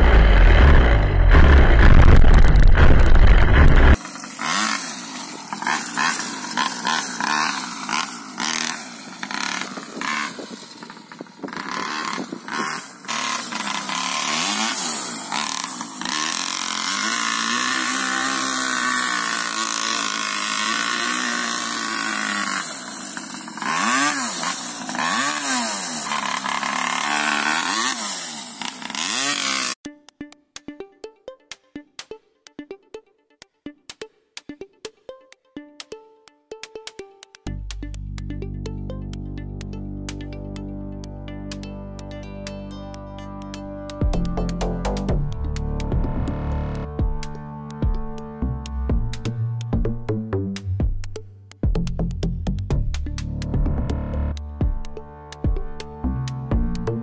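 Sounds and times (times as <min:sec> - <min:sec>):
small two-stroke engine revving: 0:00.0 - 0:29.8, 0:43.4 - 0:50.2, 0:52.8 - 0:57.0.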